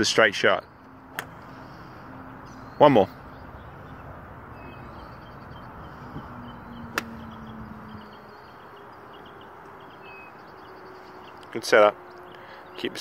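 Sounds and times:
faint high chirping: 1.6s - 11.5s.

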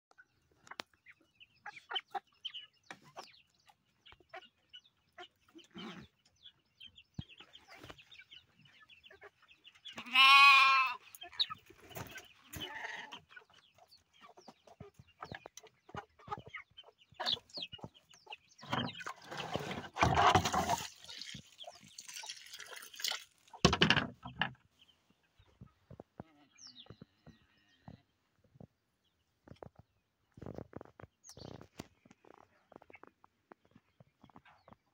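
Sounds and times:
chicks peeping: 0.1s - 10.0s, 10.9s - 22.4s, 24.2s - 34.9s
hens clucking: 0.3s - 28.7s.

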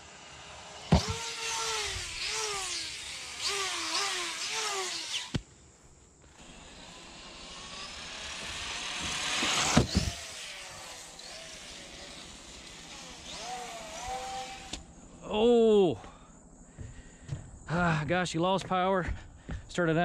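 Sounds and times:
electric motor whining: 0.0s - 5.4s, 6.3s - 15.0s.

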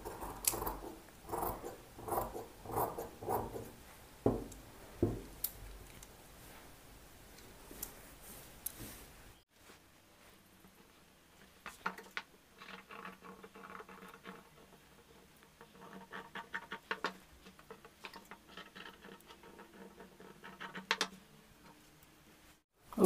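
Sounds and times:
fabric rustling and scratching: 6.3s - 11.8s.

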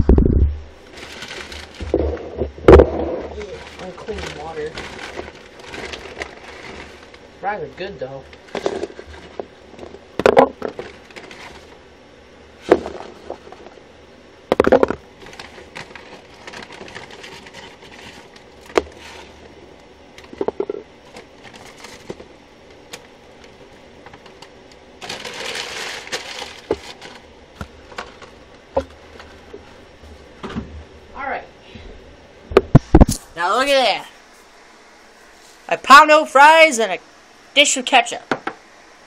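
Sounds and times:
paper bag crinkling: 0.8s - 2.0s, 3.3s - 7.2s, 10.7s - 11.8s, 15.2s - 19.4s, 21.0s - 22.2s, 24.2s - 27.3s.

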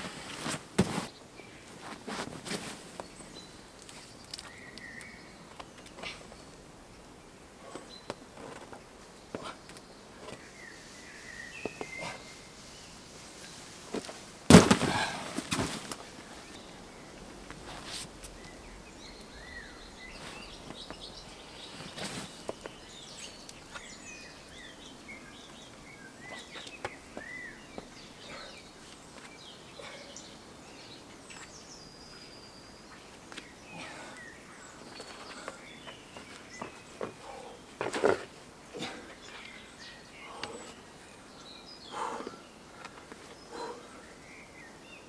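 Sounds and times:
small birds chirping: 1.0s - 15.2s, 15.8s - 45.0s
shoes and hands scraping rock: 13.9s - 16.1s, 21.6s - 22.7s, 37.8s - 38.3s.

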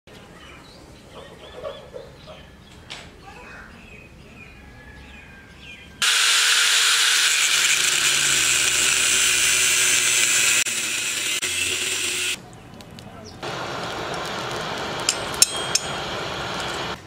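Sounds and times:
angle grinder cutting steel: 6.0s - 12.4s, 15.0s - 17.0s.

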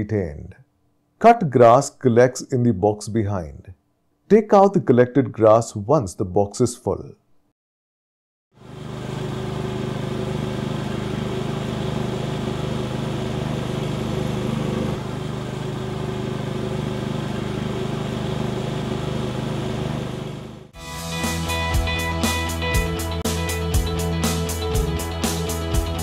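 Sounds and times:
lawn mower engine running: 8.6s - 20.8s.

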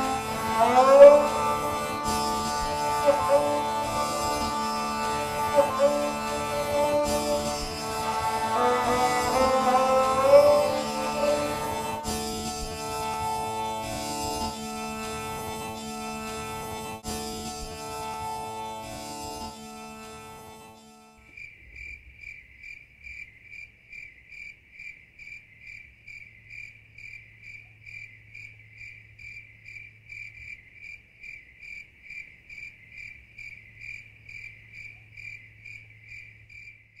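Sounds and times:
cricket chirping: 21.2s - 37.0s.

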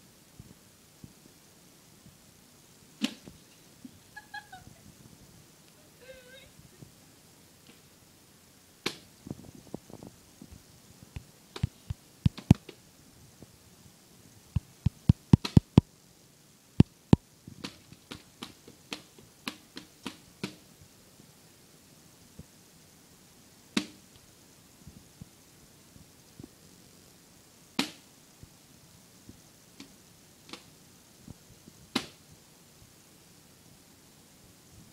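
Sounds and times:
plastic frisbee clacking on tiles: 14.9s - 15.8s.

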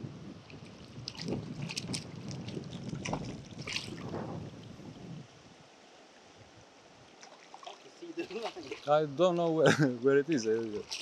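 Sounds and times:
wind buffeting microphone: 0.0s - 5.6s
sharp sounds in water: 0.4s - 4.7s, 7.1s - 9.0s, 10.3s - 11.0s.

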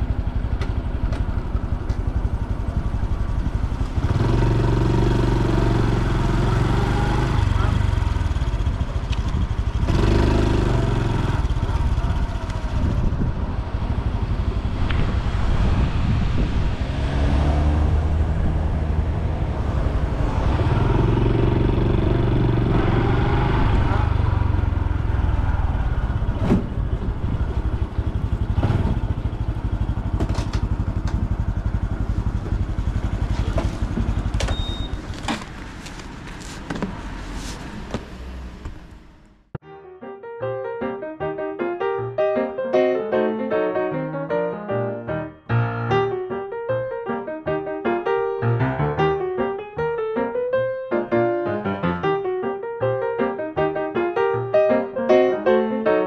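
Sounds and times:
motorcycle engine running: 0.0s - 15.2s, 18.4s - 39.0s.

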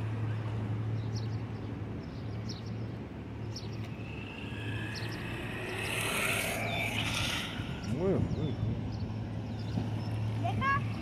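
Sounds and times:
steady low hum: 2.6s - 10.0s.

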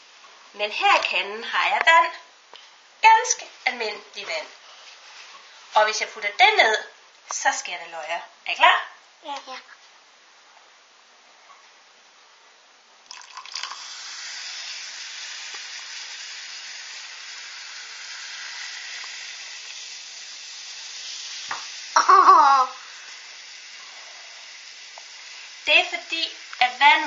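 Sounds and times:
water pouring: 13.0s - 21.9s
fizzing hiss in a glass: 13.0s - 27.0s.

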